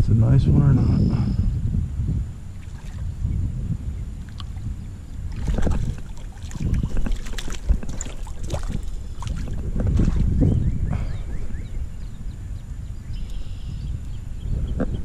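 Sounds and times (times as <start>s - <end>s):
wind rumble on microphone: 0.0s - 15.0s
fish splashing in water: 5.2s - 10.3s.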